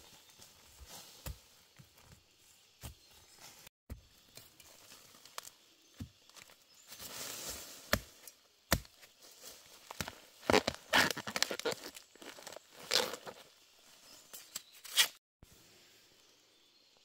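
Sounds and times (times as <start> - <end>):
machete chopping bamboo: 7.8 - 9.1
bamboo crunching and tearing: 9.8 - 13.4.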